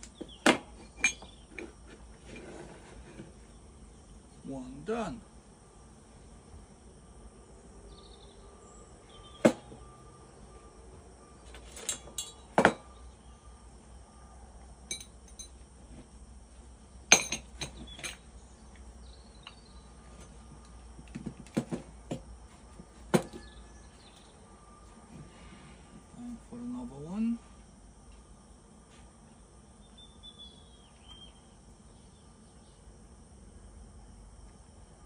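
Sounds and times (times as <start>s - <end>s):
metal parts clanking: 11.5s - 12.8s.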